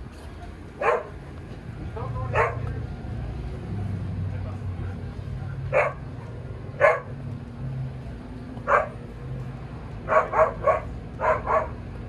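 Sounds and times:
dog barking: 0:00.8 - 0:01.2, 0:02.3 - 0:02.7, 0:05.7 - 0:07.1, 0:08.7 - 0:09.0, 0:10.1 - 0:11.8.

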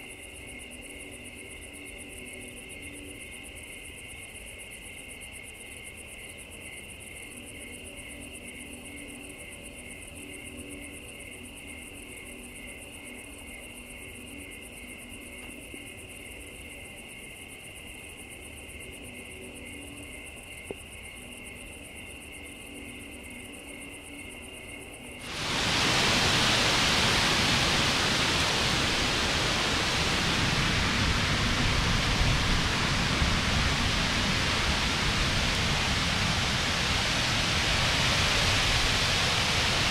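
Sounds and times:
crickets chirring: 0:00.0 - 0:39.9
heavy rain rushing: 0:25.2 - 0:39.9.

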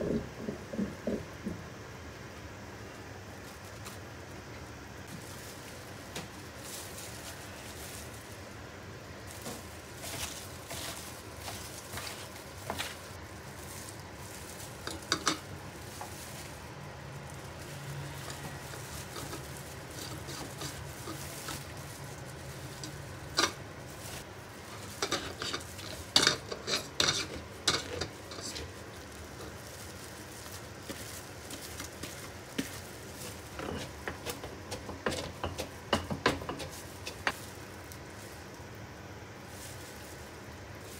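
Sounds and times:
cabbage rustling: 0:03.2 - 0:40.9
utensils clinking against dishes: 0:14.8 - 0:15.5, 0:24.7 - 0:28.7, 0:33.4 - 0:37.4.

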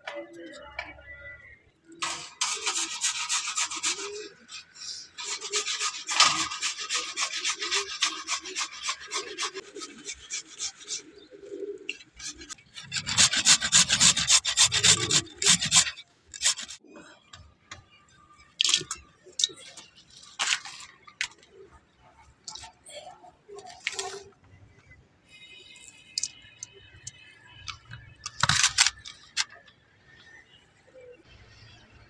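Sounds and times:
carrots rasping on metal grater: 0:02.0 - 0:11.0, 0:12.2 - 0:16.8.

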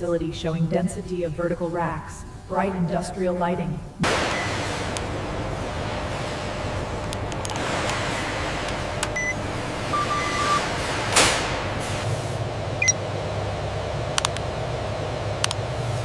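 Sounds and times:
ventilation hum: 0:00.0 - 0:16.0
barcode scanner beeps: 0:09.2 - 0:10.6, 0:12.8 - 0:13.0.

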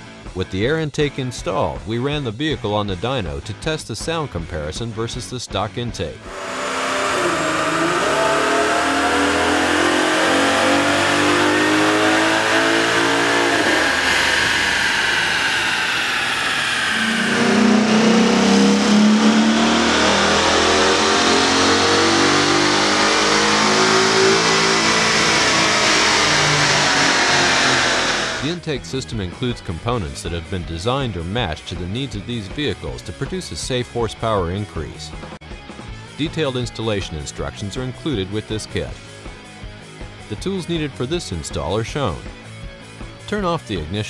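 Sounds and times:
car engine revving under load: 0:06.2 - 0:28.6.

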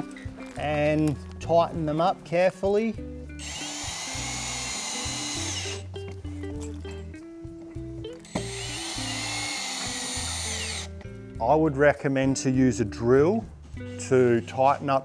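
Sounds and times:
background music: 0:00.0 - 0:15.0
cordless drill whining: 0:03.4 - 0:05.9, 0:08.2 - 0:11.0.

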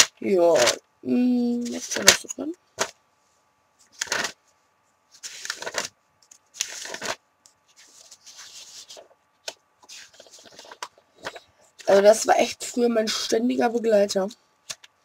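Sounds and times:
paper pages rustling: 0:03.9 - 0:04.4, 0:05.1 - 0:12.0.

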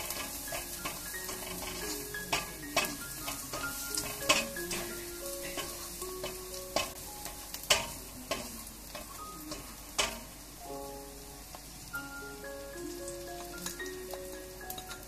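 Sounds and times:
spatula scraping and knocking pan: 0:00.0 - 0:10.4
food sizzling in hot oil: 0:00.0 - 0:15.0.

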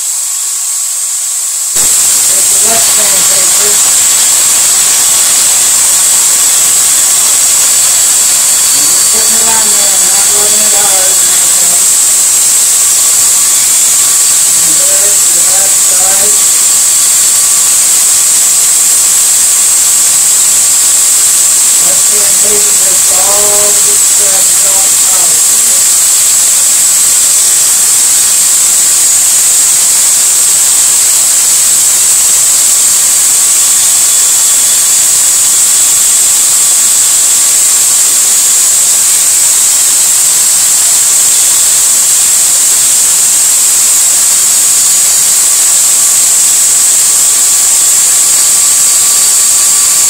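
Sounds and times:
electric drill spinning: 0:00.0 - 0:50.0
sandpaper hissing on metal: 0:00.0 - 0:50.0.

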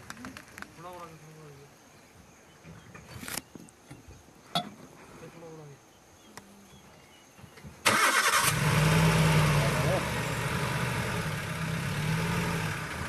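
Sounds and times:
soft rustle: 0:02.6 - 0:05.7
vehicle engine starting: 0:07.8 - 0:13.0.

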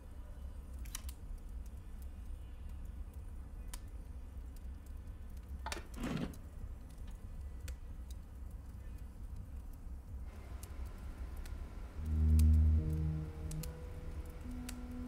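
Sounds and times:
low steady hum: 0:06.6 - 0:15.0.

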